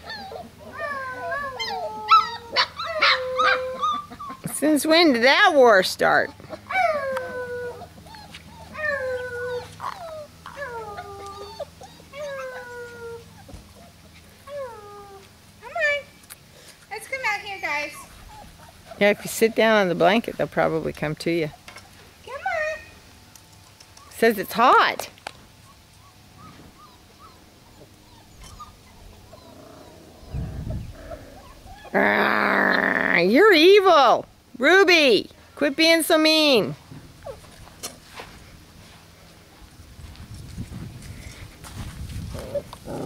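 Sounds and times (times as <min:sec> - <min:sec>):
puppies whining and yelping: 0:00.0 - 0:05.4, 0:06.2 - 0:15.8, 0:17.6 - 0:19.8, 0:23.6 - 0:24.6, 0:25.2 - 0:32.0, 0:37.2 - 0:37.6.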